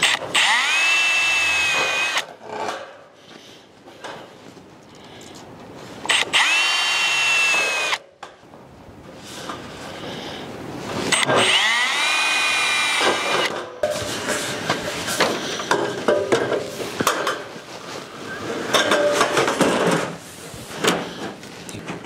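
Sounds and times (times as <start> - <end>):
power drill whining: 0.0 - 2.3, 6.1 - 8.0, 11.1 - 13.5.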